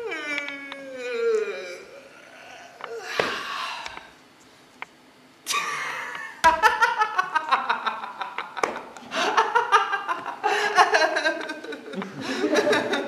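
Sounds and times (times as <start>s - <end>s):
breathy intake: 0.0s - 4.2s
person laughing: 5.5s - 13.0s.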